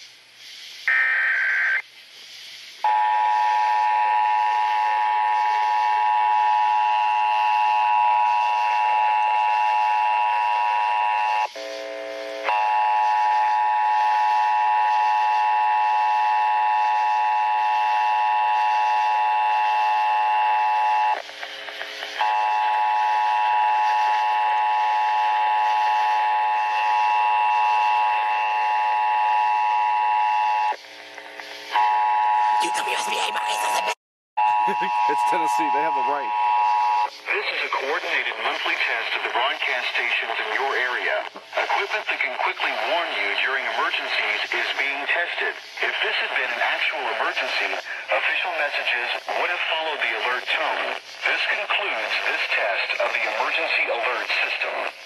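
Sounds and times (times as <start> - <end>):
data tones burst: 32.6 - 37.1
two-tone attention signal: 34.4 - 37.0.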